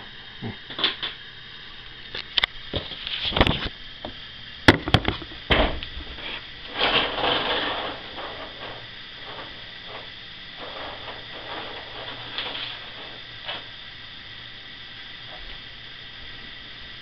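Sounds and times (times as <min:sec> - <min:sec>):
paper rustle: 0:06.1 - 0:13.8.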